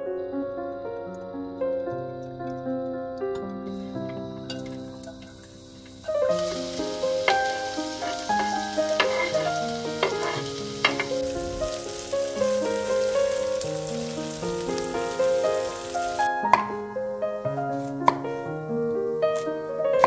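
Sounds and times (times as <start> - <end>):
keyboard background music: 0.0 - 20.0
onions sizzling in oil: 3.7 - 16.8
spatula stirring in pan: 6.4 - 11.3.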